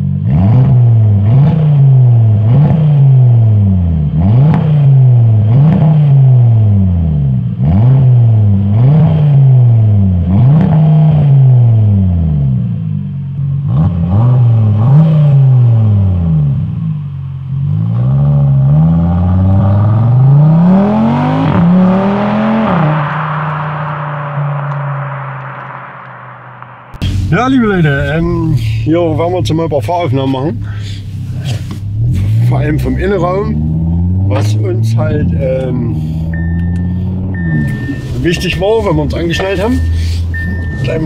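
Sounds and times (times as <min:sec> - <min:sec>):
car engine revving: 0:00.0 - 0:41.0
car accelerating away: 0:17.5 - 0:41.0.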